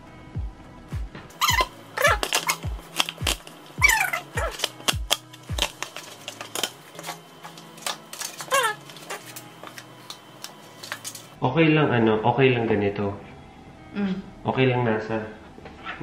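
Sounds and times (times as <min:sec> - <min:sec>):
electronic background music: 0:00.0 - 0:11.4.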